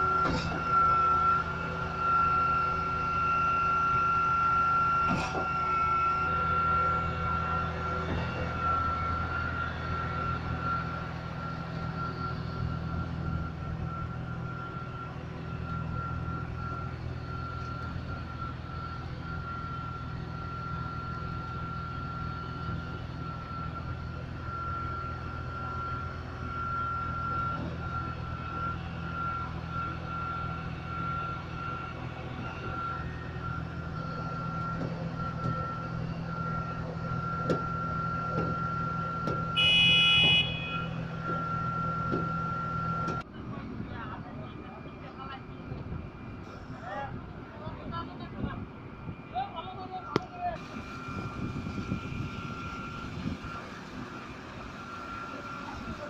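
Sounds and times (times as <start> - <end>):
high whine: 0.0 - 43.2
heavy diesel engine running: 0.0 - 56.0
loud beep: 8.5 - 43.2.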